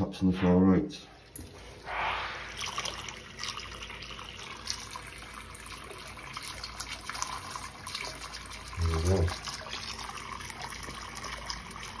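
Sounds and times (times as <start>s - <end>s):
tap running into basin: 2.5s - 12.0s.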